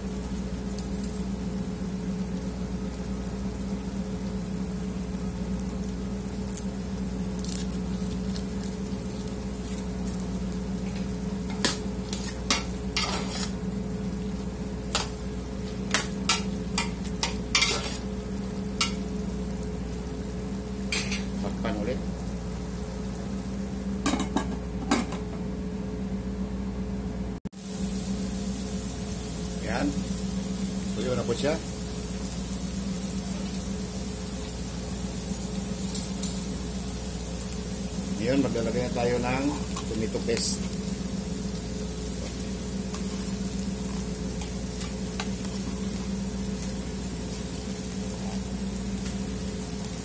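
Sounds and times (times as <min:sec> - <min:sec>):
meat sizzling in a pot: 0:00.0 - 0:25.2, 0:27.5 - 0:50.0
low machine hum: 0:00.0 - 0:50.0
metal spatula scraping a pot: 0:13.0 - 0:13.6.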